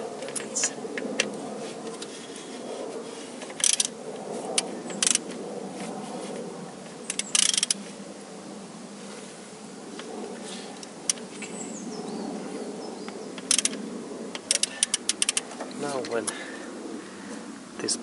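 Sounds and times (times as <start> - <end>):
steady hum: 0.0 - 18.0
ratchet wrench clicking: 3.6 - 3.9, 5.0 - 5.2, 7.1 - 7.8, 13.4 - 13.8, 14.4 - 15.4.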